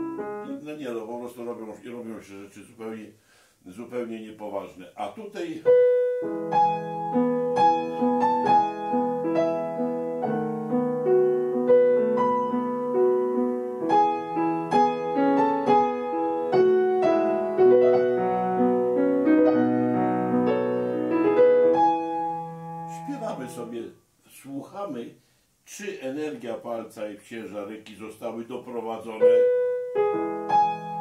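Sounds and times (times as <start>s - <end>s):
piano playing flowing melody: 0.0s - 0.7s, 5.6s - 23.7s, 29.2s - 31.0s.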